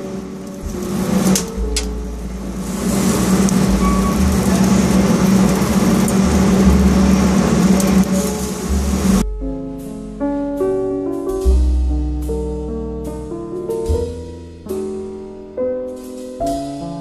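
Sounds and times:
rushing noise: 0:00.0 - 0:09.2
steady mechanical hum: 0:00.0 - 0:09.2.

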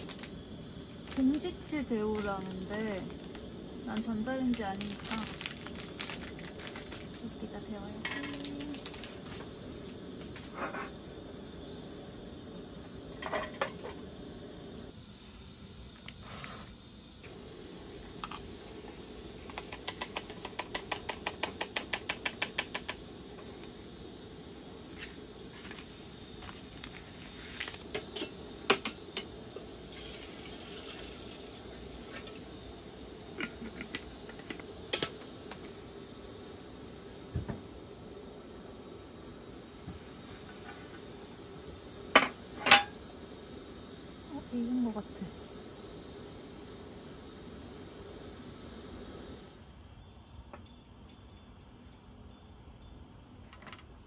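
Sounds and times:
low steady hiss: 0:00.0 - 0:54.0.

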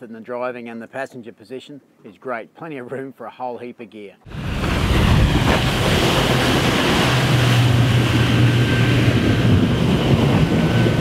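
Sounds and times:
motorboat engine hum: 0:04.3 - 0:11.0
water rushing and spray: 0:04.3 - 0:11.0
wind noise on microphone: 0:04.3 - 0:11.0.

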